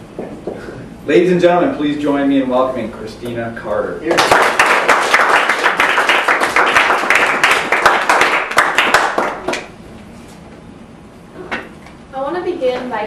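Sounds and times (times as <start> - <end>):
people applauding: 4.1 - 9.7.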